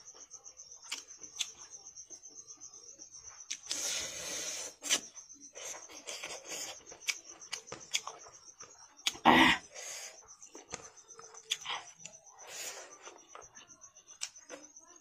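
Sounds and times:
chewing: 0:03.3 - 0:09.2, 0:10.2 - 0:14.7.

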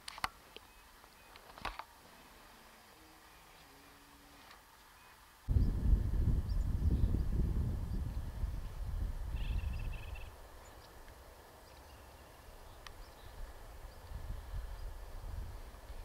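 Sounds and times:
low rumble: 0:05.5 - 0:10.3
songbird trilled call: 0:09.3 - 0:10.9.

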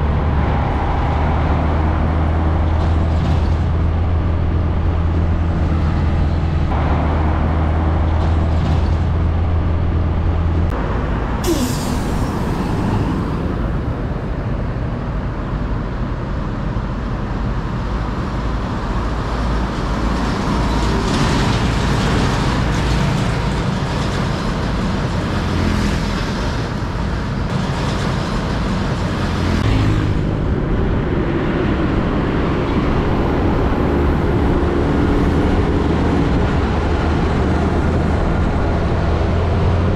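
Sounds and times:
heavy trucks driving past: 0:00.0 - 0:39.9
air brake hiss: 0:11.4 - 0:13.5.

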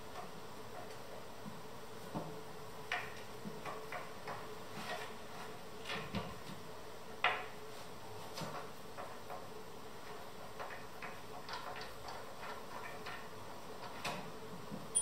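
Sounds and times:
faint steady hum: 0:13.8 - 0:15.0.

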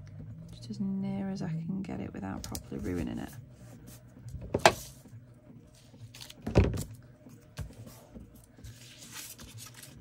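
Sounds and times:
paper rustling: 0:05.8 - 0:06.5, 0:07.8 - 0:10.0.

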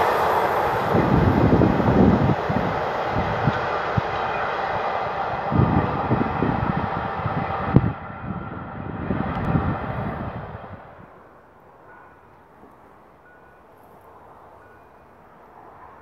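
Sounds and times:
wind buffeting microphone: 0:00.0 - 0:11.3
freight train rolling on track: 0:00.0 - 0:16.0.

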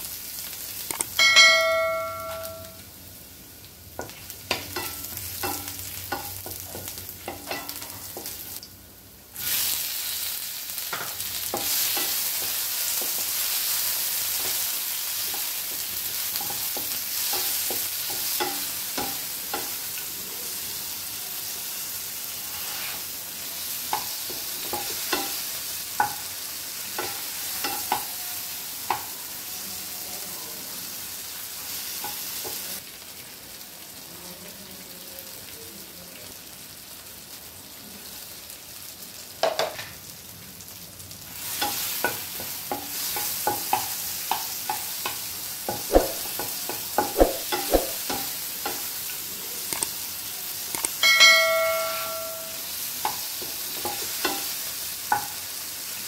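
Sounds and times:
food sizzling in oil: 0:00.0 - 0:56.0
ringing tone: 0:01.2 - 0:02.8, 0:51.0 - 0:52.7
spatula scraping a pan: 0:22.3 - 0:23.2.

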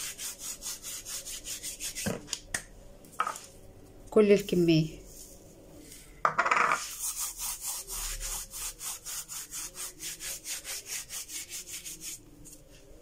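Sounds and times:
dried mint rubbed between palms: 0:00.0 - 0:02.1, 0:06.8 - 0:12.9.

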